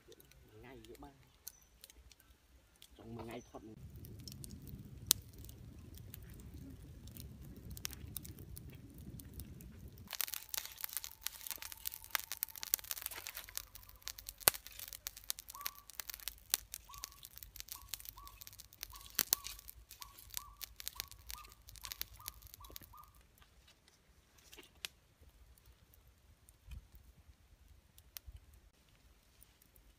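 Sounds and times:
wood fire crackling: 0:00.0 - 0:29.9
low rumble: 0:03.7 - 0:14.2
bird calling repeated notes: 0:10.4 - 0:14.3, 0:15.4 - 0:23.2.

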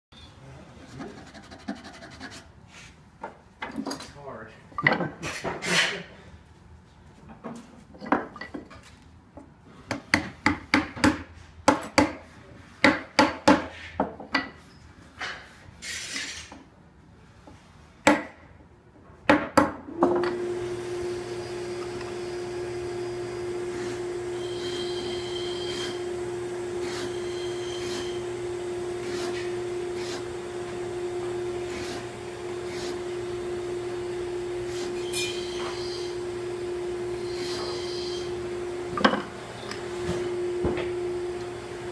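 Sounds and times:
mallet striking chisel into wood: 0:09.9 - 0:12.2, 0:12.8 - 0:13.7, 0:18.0 - 0:18.4
shop machine humming: 0:19.9 - 0:41.9.

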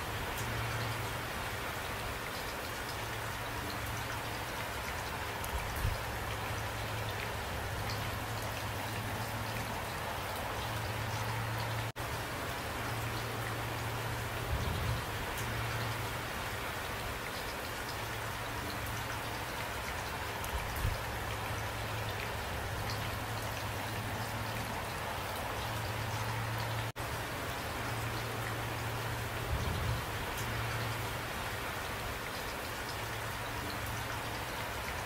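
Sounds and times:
steady rain falling: 0:00.0 - 0:35.0
raindrop ticks: 0:00.2 - 0:01.2, 0:15.2 - 0:27.1, 0:27.8 - 0:31.2.

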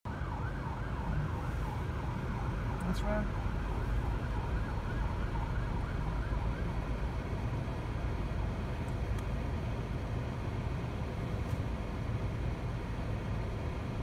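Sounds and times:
siren wailing: 0:00.1 - 0:07.2
street traffic rumble: 0:00.1 - 0:14.0.

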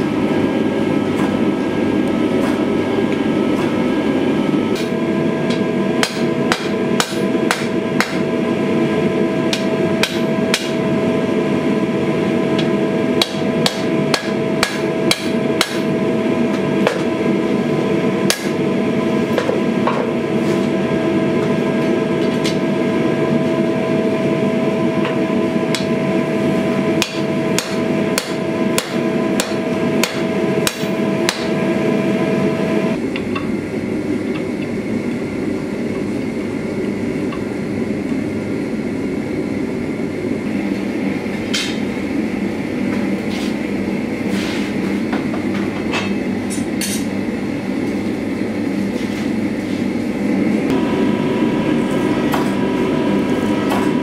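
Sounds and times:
steady machine noise: 0:00.0 - 0:54.0
hammer striking hot steel on anvil: 0:04.7 - 0:08.3, 0:09.4 - 0:10.9, 0:12.5 - 0:17.1, 0:18.2 - 0:18.7, 0:25.0 - 0:26.0, 0:26.9 - 0:31.6.

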